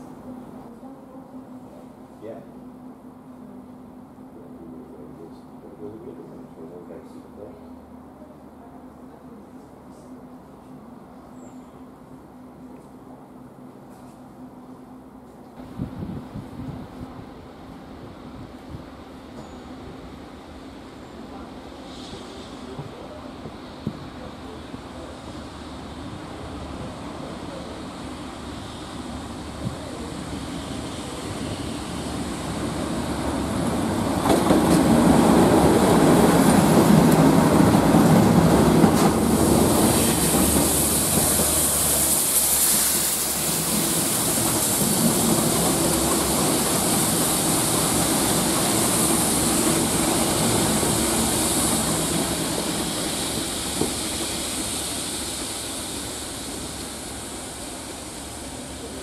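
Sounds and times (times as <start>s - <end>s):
diesel locomotive engine rumble: 0.0s - 59.0s
high-pressure water jets hissing: 39.3s - 59.0s.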